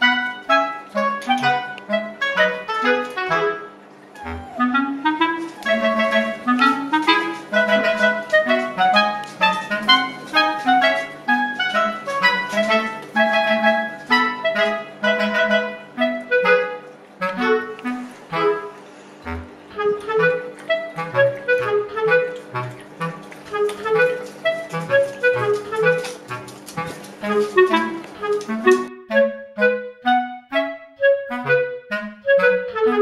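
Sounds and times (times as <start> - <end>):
bouncy woodwind melody: 0.0 - 33.0
bass line: 4.2 - 6.9, 19.2 - 23.2.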